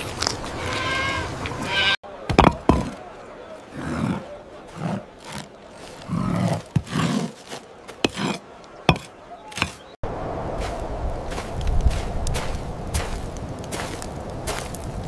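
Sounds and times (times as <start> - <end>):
stones knocking: 2.3 - 3.0, 5.2 - 9.9
stones scraping and rasping: 2.3 - 3.0, 3.6 - 10.0.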